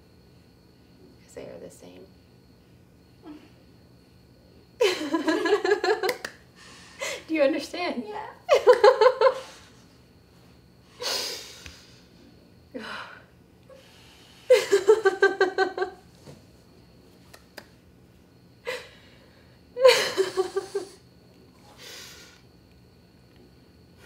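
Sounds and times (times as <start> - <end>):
woman laughing: 4.8 - 6.3, 8.5 - 9.5, 14.5 - 16.0, 19.8 - 21.0.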